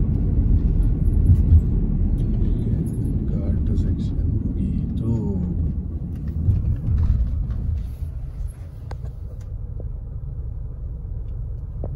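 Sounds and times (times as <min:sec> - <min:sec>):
car engine and tyres rumbling: 0:00.0 - 0:11.9.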